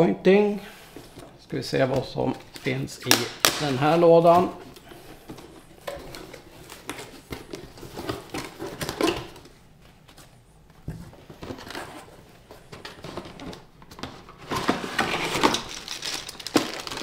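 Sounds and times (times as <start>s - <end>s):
cardboard scraping and rustling: 10.9s - 17.0s.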